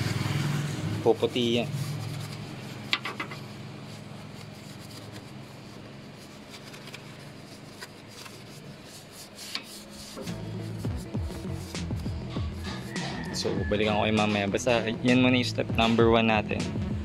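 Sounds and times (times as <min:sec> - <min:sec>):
brush scrubbing metal: 0:00.3 - 0:12.9.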